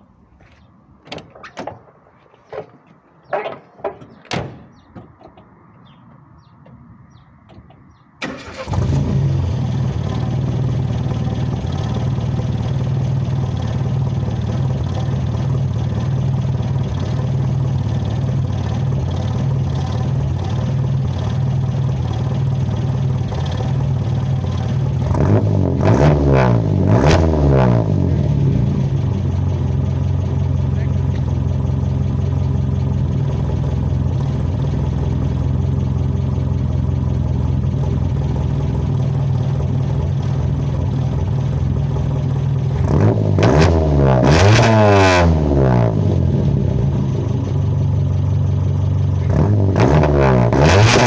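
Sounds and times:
car engine starting and idling: 0.0 - 51.0
knocks and clicks: 1.0 - 8.1
engine revving: 8.2 - 36.3, 38.8 - 47.6, 49.0 - 51.0.

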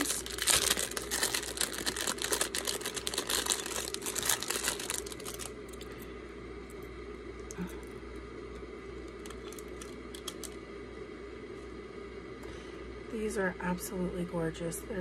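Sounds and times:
plastic bag crinkling: 0.0 - 6.0, 9.0 - 10.6.

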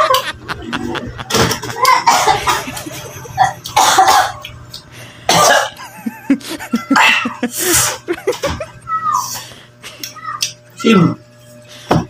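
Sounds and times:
man coughing hard: 1.2 - 2.6, 3.3 - 4.4, 5.3 - 8.5.

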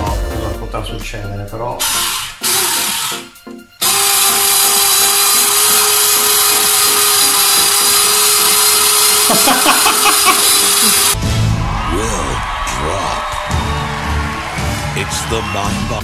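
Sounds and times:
electric slicer motor whirring: 1.8 - 11.2.

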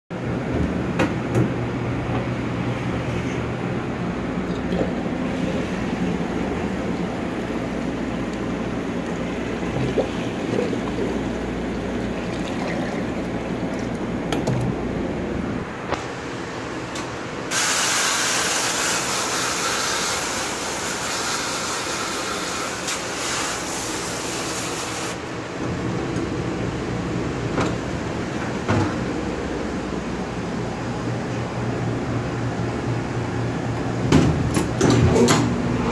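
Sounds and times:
dishwasher running: 0.1 - 16.2, 18.6 - 35.9
low machine hum: 0.1 - 17.5, 25.2 - 35.9.

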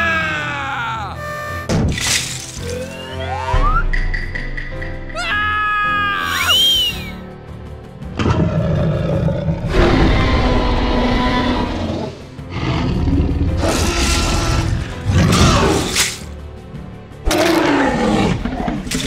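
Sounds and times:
background music: 0.0 - 19.0
dinosaur roars: 8.2 - 15.9, 17.2 - 18.9.

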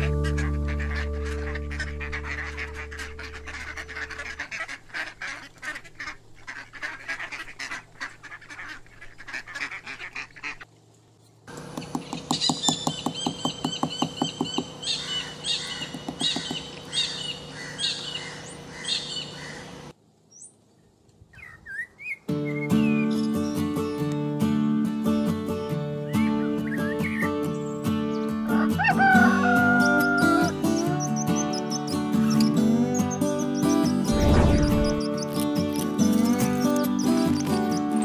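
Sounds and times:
bird calls: 0.0 - 10.7, 11.7 - 24.1, 26.1 - 38.0
quick repeated high bird calls: 12.2 - 19.8.

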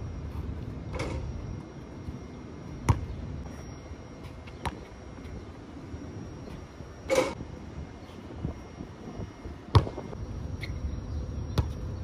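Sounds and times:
basketball bouncing on concrete: 2.8 - 3.2, 4.4 - 5.0, 9.7 - 10.1, 11.5 - 11.8.

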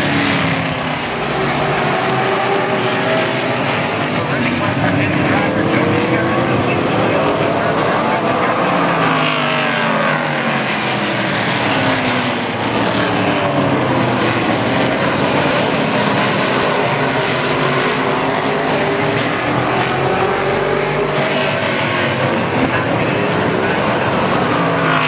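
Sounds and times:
race car engines passing: 0.0 - 25.0.

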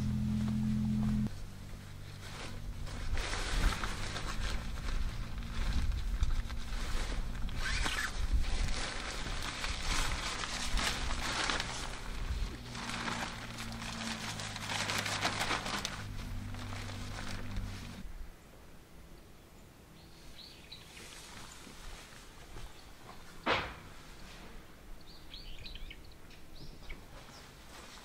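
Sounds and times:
tent fabric rustling: 0.0 - 18.1, 20.9 - 23.3, 27.1 - 28.0.

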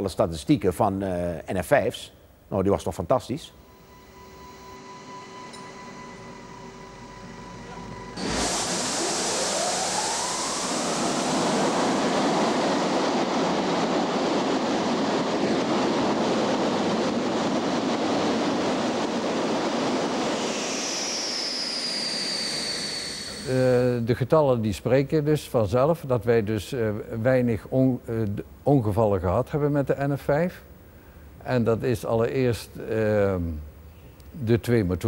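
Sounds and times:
steady hum with tones: 3.3 - 34.6
high whine: 3.5 - 24.4
jet engine spooling up: 3.7 - 24.1.

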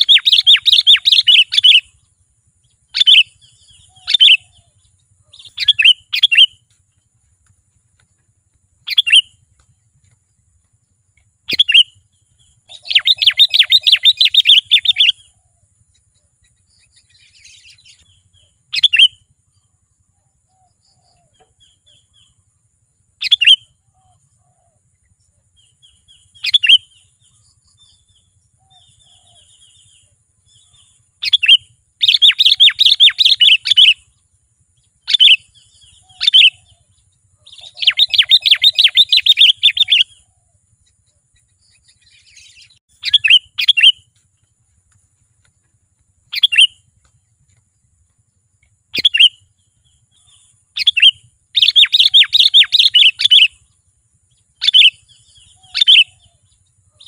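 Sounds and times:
rapid bird chattering: 0.0 - 2.0, 2.9 - 6.6, 8.8 - 9.4, 11.5 - 15.2, 30.6 - 34.1, 35.0 - 40.2, 41.4 - 44.0, 46.3 - 46.8, 48.9 - 49.4, 50.1 - 53.7
bird chirping: 0.0 - 57.0.

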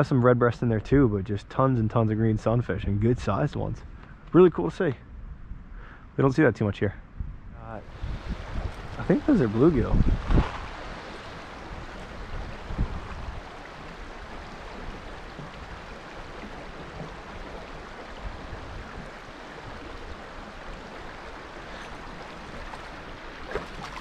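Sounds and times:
low bumps: 7.1 - 13.4
stony creek rushing: 7.8 - 24.0.

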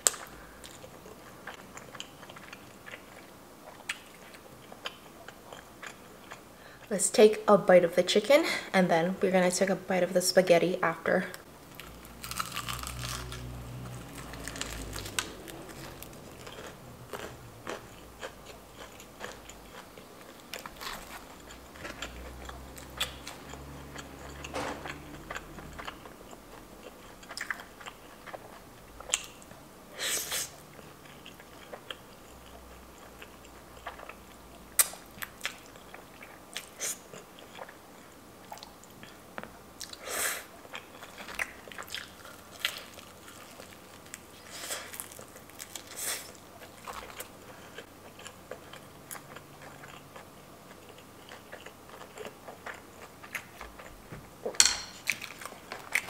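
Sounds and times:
chewing with crisp crunches: 0.0 - 6.9, 11.6 - 56.0
biting into crispy chicken: 12.2 - 13.6.

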